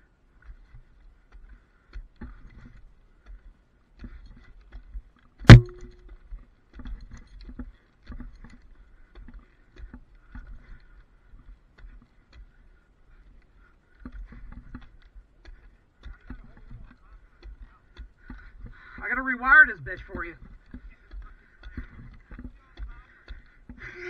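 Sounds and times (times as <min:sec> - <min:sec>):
strap hardware knocking on pole: 0:05.5 - 0:06.0
loud sharp ringing knock: 0:05.5 - 0:06.1.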